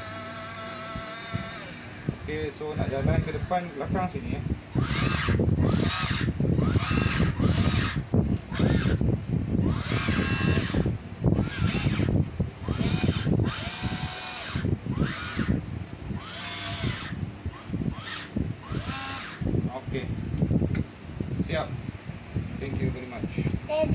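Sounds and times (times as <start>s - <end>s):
toy excavator electric motors whining: 0.0s - 3.9s, 4.7s - 9.0s, 9.6s - 15.6s, 16.2s - 19.5s.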